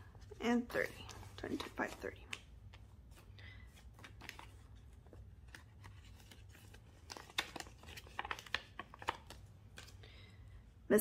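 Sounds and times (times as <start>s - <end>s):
banknotes rustling: 0.1s - 10.1s
plastic envelope crinkling: 4.0s - 10.0s.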